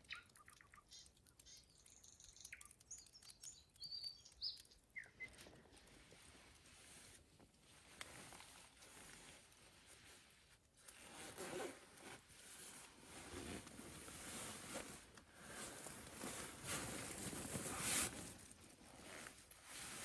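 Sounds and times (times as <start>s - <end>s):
sleeping bag fabric rustling: 10.9s - 20.0s.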